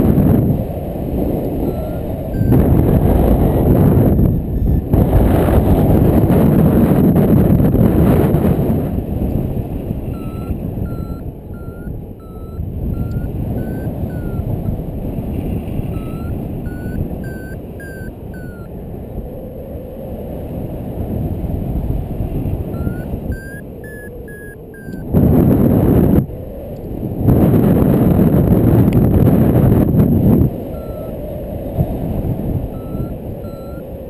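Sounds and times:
wind on microphone: 0:00.0 - 0:34.0
variometer beeping: 0:01.6 - 0:03.0, 0:03.7 - 0:05.6, 0:10.0 - 0:14.8, 0:15.5 - 0:18.7, 0:22.7 - 0:25.8, 0:29.6 - 0:31.3, 0:32.6 - 0:34.0.

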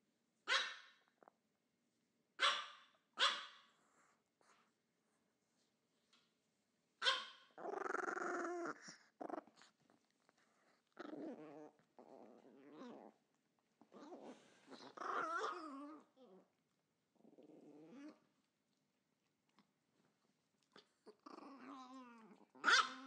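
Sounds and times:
dog barking: 0:00.5 - 0:00.9, 0:02.4 - 0:03.7, 0:07.0 - 0:07.4
dogs snarling and growling: 0:07.6 - 0:13.2, 0:13.8 - 0:16.4, 0:17.2 - 0:18.2, 0:20.8 - 0:23.0.

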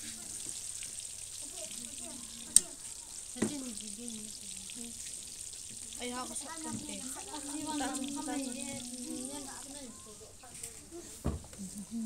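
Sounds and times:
oil sizzling in a wok: 0:00.0 - 0:10.3
soft knock: 0:11.2 - 0:11.5.

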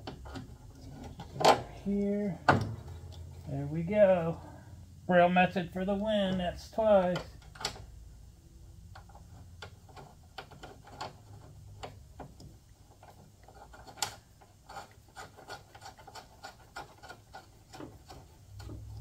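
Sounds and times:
faint metal scraping: 0:00.0 - 0:05.0, 0:12.8 - 0:19.0
small irregular clicks: 0:07.1 - 0:07.9, 0:08.9 - 0:19.0.

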